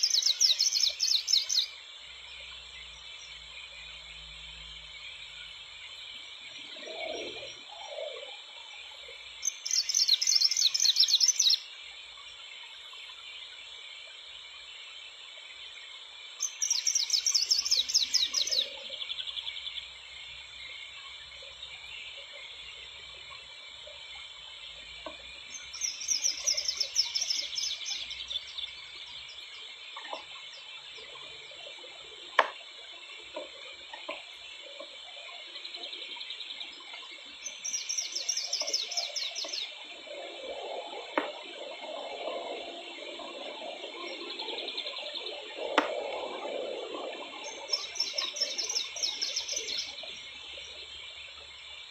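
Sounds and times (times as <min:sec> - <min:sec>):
songbird trilling: 0:00.0 - 0:01.8, 0:09.4 - 0:11.7, 0:16.4 - 0:19.4, 0:25.5 - 0:28.6, 0:37.4 - 0:39.8, 0:47.4 - 0:50.3.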